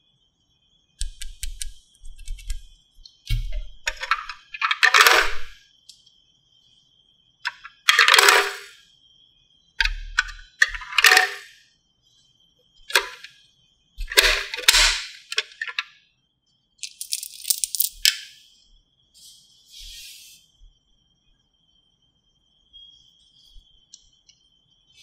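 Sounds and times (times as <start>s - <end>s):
plastic coins clattering in slot: 3.8s - 5.6s, 7.5s - 8.8s, 9.8s - 11.5s, 12.9s - 13.3s, 14.0s - 15.8s, 16.8s - 18.3s.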